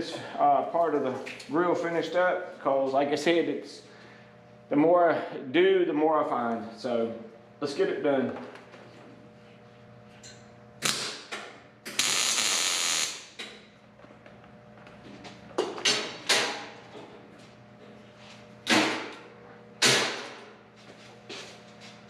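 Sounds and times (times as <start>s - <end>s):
welder crackling: 10.8s - 11.3s, 11.9s - 13.4s.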